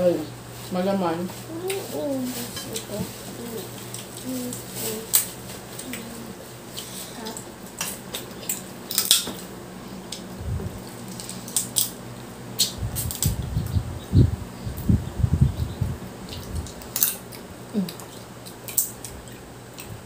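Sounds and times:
seafood shells cracking: 7.8 - 9.4, 10.9 - 12.0, 16.3 - 19.9.

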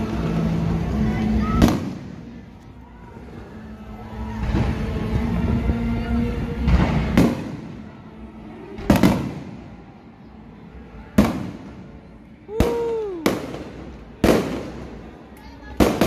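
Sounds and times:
fireworks bursting with echo: 0.3 - 2.6, 6.5 - 10.2, 11.0 - 16.0.

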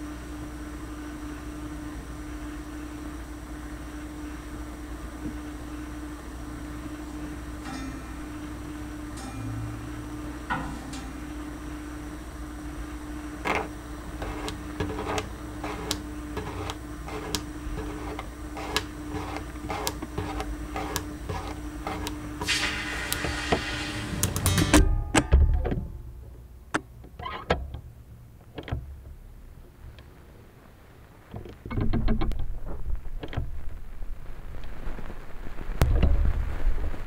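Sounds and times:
steady hum with held tone: 0.0 - 36.6
sharp clicks and crackles: 13.4 - 22.2
rush of hiss: 22.4 - 24.5.

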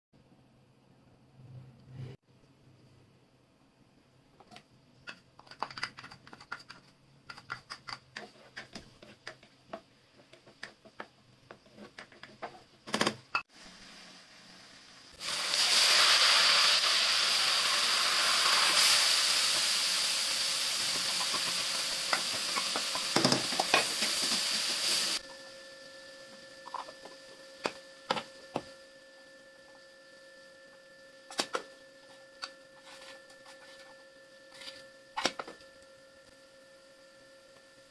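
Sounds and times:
onions frying in hot oil: 13.5 - 25.4
loud sizzling hiss: 13.6 - 25.2.

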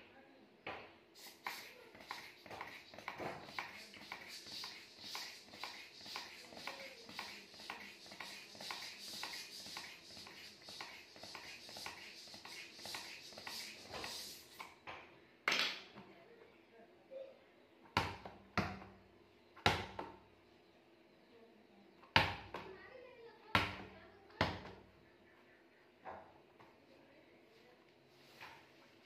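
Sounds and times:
hand pump strokes with air hiss: 1.2 - 14.8.

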